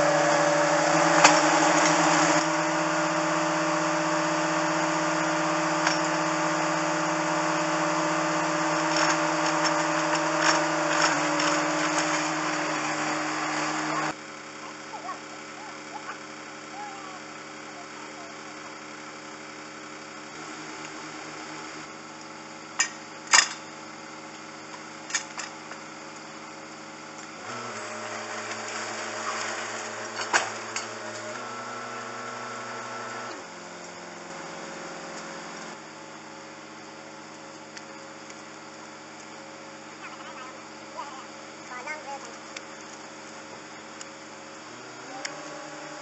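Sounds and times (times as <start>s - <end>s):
sharp metal clanks: 22.8s - 23.7s.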